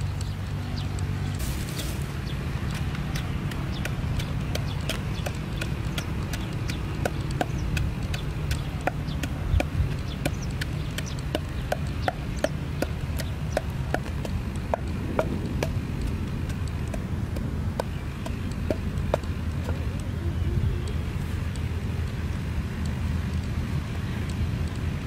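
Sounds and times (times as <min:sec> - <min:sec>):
pestle pounding in wooden mortar: 0:02.4 - 0:19.8.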